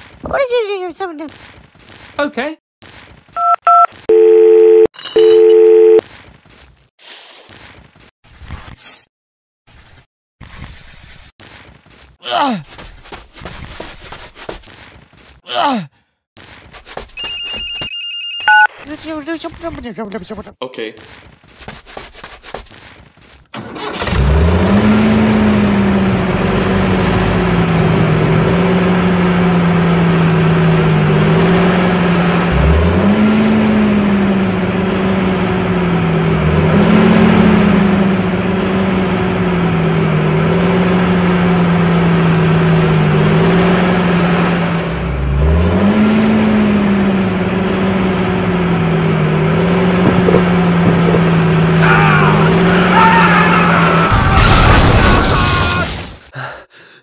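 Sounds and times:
tractor engine revving: 23.5s - 54.1s.

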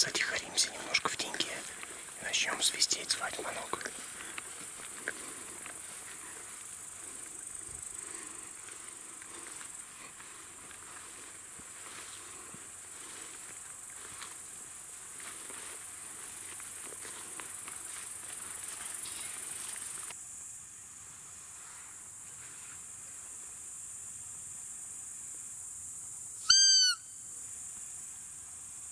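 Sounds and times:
faint rustles: 0.0s - 20.1s
crickets chirring: 0.0s - 28.9s.

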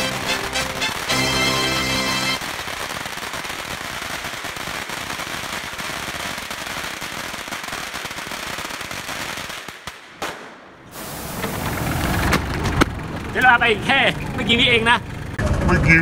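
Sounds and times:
firecrackers crackling: 0.0s - 15.3s.

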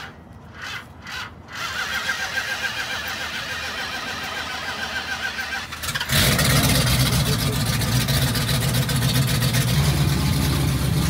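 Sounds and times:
engine starter whirring: 0.0s - 8.7s.

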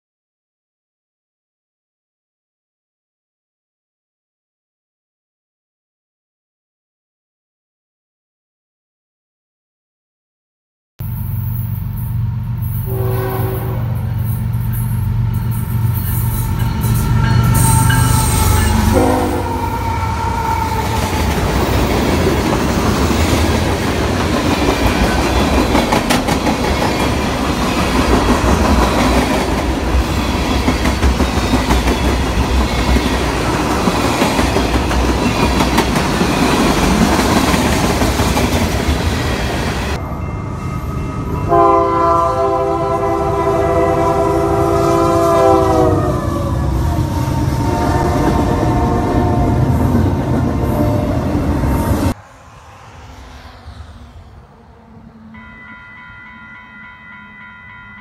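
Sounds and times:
freight train rumbling past: 11.0s - 58.0s
diesel locomotive horn: 12.8s - 21.5s, 41.2s - 52.2s.

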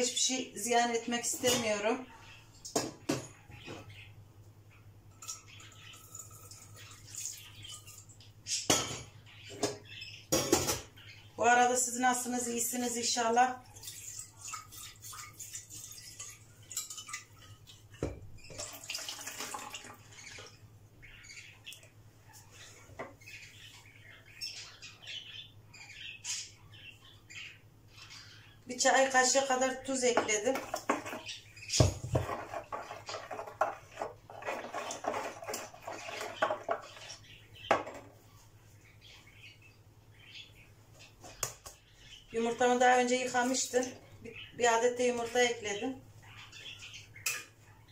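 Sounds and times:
metal spoon clinking in glass bowl: 5.1s - 6.7s
yogurt splashing into bowl: 18.5s - 20.0s
spatula scraping plastic pot: 30.6s - 37.2s.

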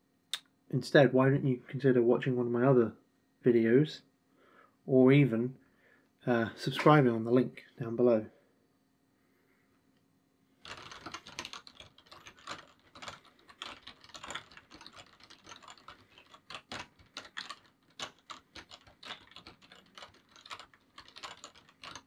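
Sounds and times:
typing on keyboard: 10.6s - 22.0s.

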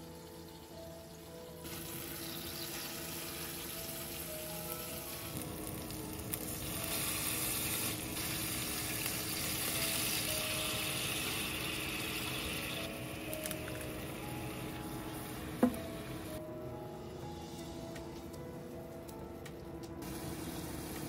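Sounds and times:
meat sizzling in a frying pan: 0.0s - 16.3s.

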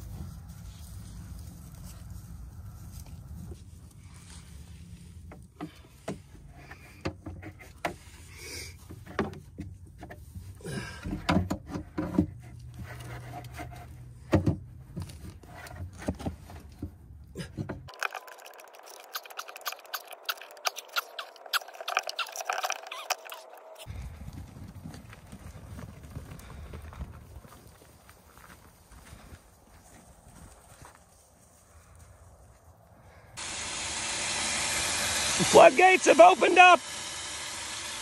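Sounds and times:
tools clicking and scraping plastic: 17.9s - 23.9s.

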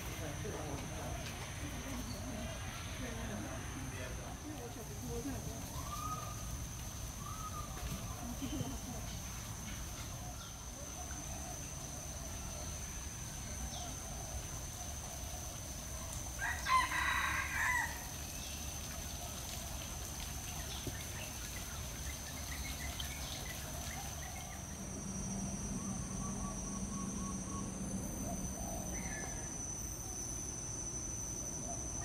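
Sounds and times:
faint bird chirps: 5.6s - 6.5s, 7.2s - 8.8s, 20.6s - 29.6s
rooster crowing: 16.4s - 18.2s.

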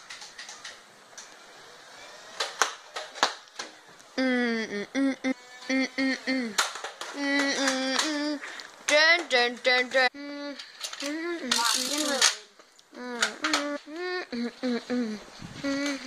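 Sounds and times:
child calling out: 13.0s - 16.0s.

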